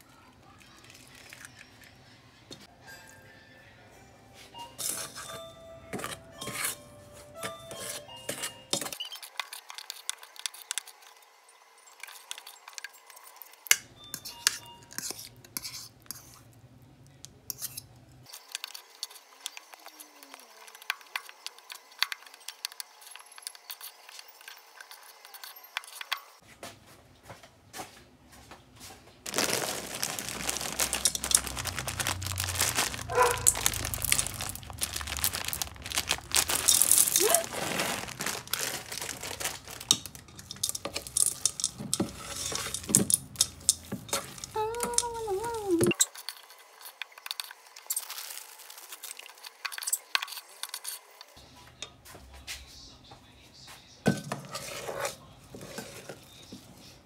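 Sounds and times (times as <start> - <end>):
metal spoon scraping bowl: 4.8 - 5.3, 5.9 - 6.8, 14.2 - 16.6, 17.5 - 20.0, 39.9 - 45.0, 49.2 - 51.3, 54.2 - 56.3
foil bag crinkling and tearing: 29.3 - 45.9, 47.9 - 49.5.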